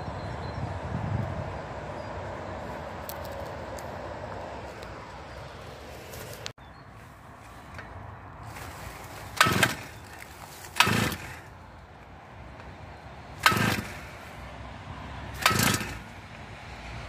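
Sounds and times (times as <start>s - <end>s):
chainsaw starter cord whirring: 8.5s - 11.6s, 13.3s - 14.4s, 15.3s - 16.4s.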